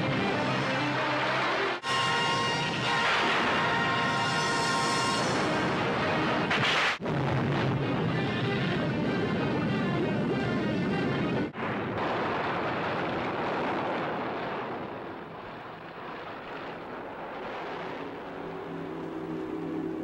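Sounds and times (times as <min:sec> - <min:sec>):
soundtrack music: 0:00.0 - 0:06.5
steady rushing noise: 0:00.0 - 0:20.0
explosion rumble: 0:05.3 - 0:19.1.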